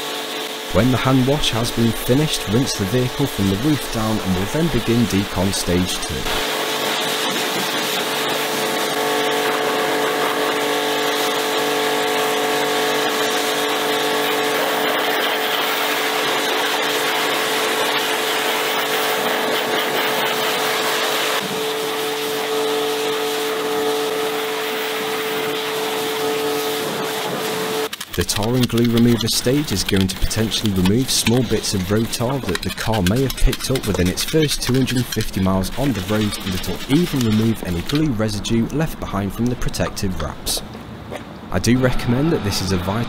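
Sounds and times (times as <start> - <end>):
water jet hissing: 0.0 - 39.9, 41.6 - 43.0
pressure washer motor humming: 0.0 - 40.8.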